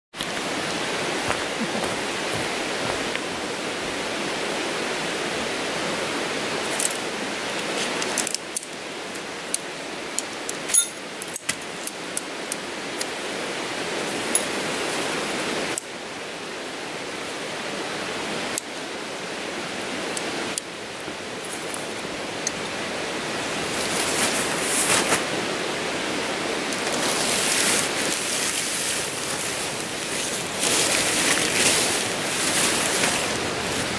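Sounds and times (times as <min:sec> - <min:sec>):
tent poles and stakes clicking: 0:06.7 - 0:13.2, 0:14.0 - 0:14.7, 0:26.7 - 0:33.9
steady rushing noise: 0:19.4 - 0:33.9
tent fabric rustling: 0:23.4 - 0:25.4, 0:26.7 - 0:33.9.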